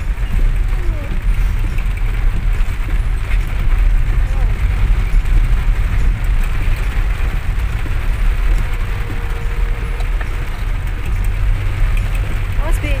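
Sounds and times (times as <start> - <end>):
car driving on wet road: 0.0 - 13.0
heavy rain on car roof: 0.0 - 13.0.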